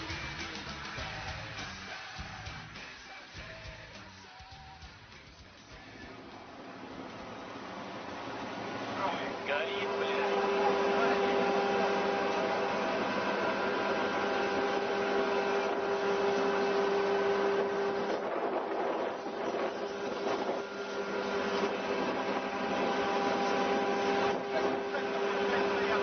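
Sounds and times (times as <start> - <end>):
boat engine droning: 6.1 - 26.0.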